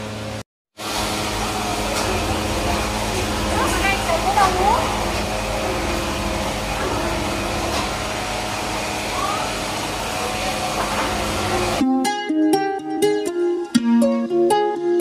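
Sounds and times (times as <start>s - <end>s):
oil press machinery whirring: 0.0s - 11.8s.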